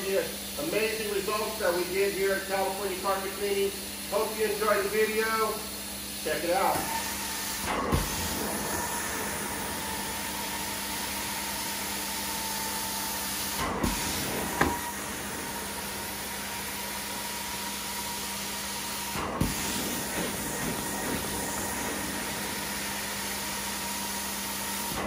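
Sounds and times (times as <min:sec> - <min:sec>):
carpet cleaning wand hissing: 0:08.0 - 0:25.0.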